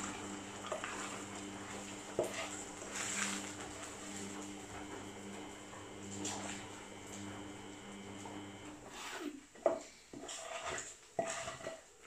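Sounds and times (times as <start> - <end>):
eggs sizzling in frying pan: 0.0 - 8.9
steady hum: 0.0 - 8.9.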